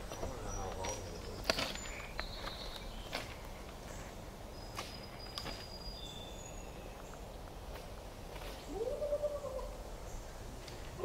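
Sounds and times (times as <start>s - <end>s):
footsteps on gravel: 0.0s - 5.7s.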